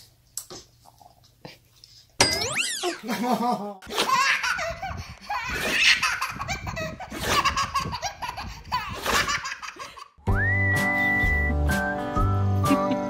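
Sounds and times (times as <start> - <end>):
baby laughing: 2.6 - 10.2
whistle-like melody over beat: 10.3 - 13.0.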